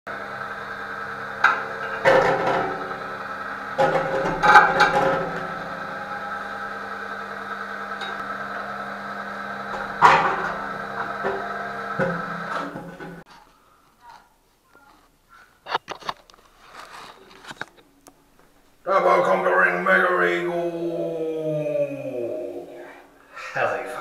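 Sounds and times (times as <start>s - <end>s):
electrical hum: 0.1s - 24.0s
metal bucket and sheet metal clanking: 1.4s - 3.0s, 3.8s - 5.8s, 9.7s - 13.2s.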